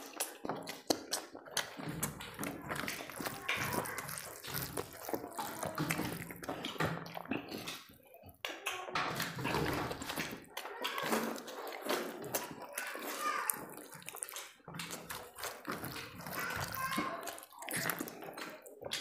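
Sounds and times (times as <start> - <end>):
hands mashing rice on steel plates: 0.0 - 19.0
mouths chewing: 0.0 - 19.0.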